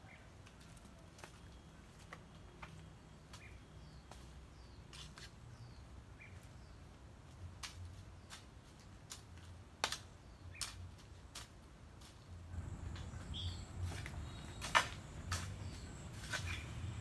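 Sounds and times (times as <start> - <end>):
faint bird chirps: 12.6 - 17.0.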